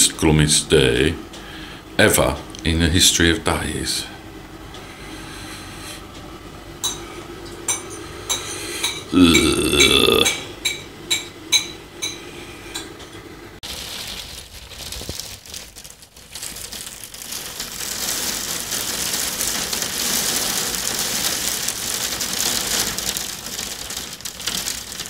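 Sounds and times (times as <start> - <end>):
rain hissing: 13.6 - 25.0.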